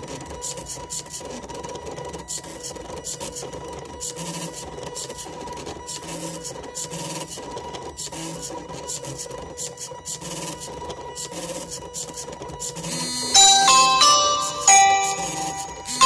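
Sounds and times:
stepper motors buzzing: 0:01.2 - 0:16.0
thin steady whine: 0:12.9 - 0:16.0.

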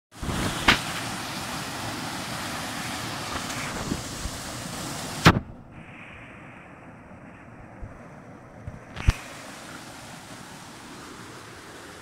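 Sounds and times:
waterfall rushing into pool: 0:00.1 - 0:05.4, 0:08.9 - 0:12.0.

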